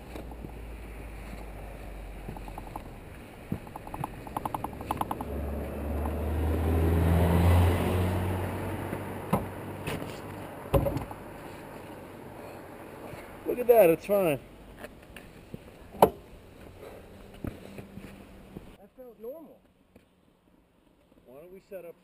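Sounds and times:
vehicle engine running: 0:00.1 - 0:12.0
quick run of clicks: 0:02.3 - 0:02.9, 0:03.5 - 0:05.4
sharp knocks: 0:03.5 - 0:05.4.

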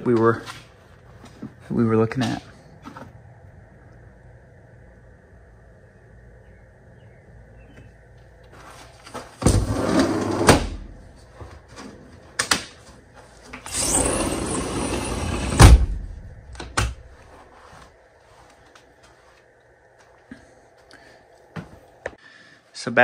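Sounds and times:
sliding glass door rolling: 0:09.4 - 0:10.8, 0:13.7 - 0:16.1.

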